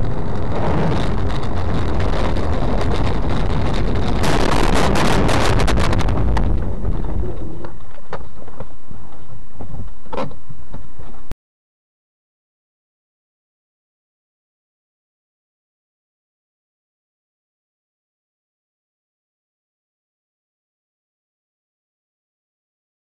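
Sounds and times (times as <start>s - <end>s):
wind buffeting microphone: 0.0s - 10.1s
vehicle rumble: 0.0s - 11.4s.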